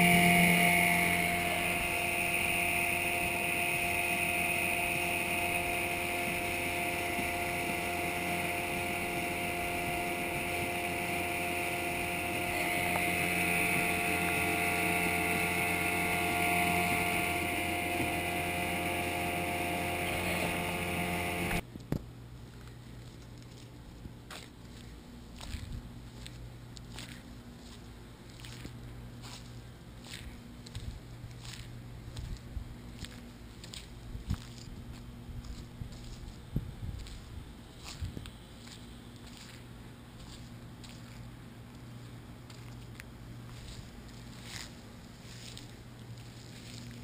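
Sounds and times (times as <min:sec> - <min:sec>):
outboard motor running: 0:00.0 - 0:21.7
wind noise: 0:34.1 - 0:38.3.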